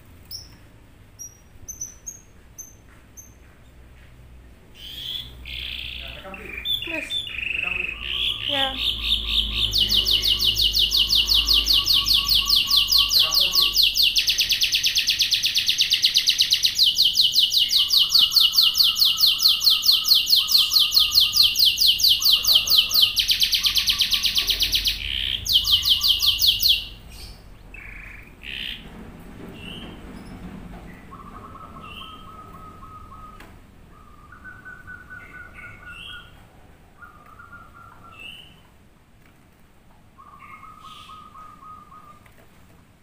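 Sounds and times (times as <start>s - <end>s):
canary trilling: 1.2s - 3.4s, 4.7s - 28.9s
whistled notes: 31.0s - 36.2s.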